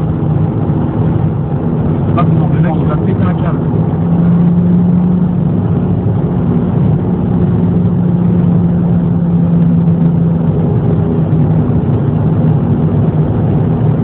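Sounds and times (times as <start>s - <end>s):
car engine drone: 0.0s - 14.0s
road and tyre noise: 0.0s - 14.0s.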